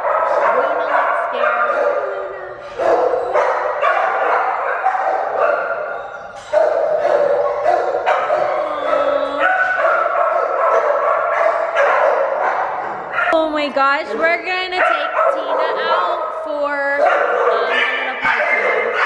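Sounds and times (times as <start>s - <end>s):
many dogs barking: 0.0s - 13.4s, 14.2s - 19.0s.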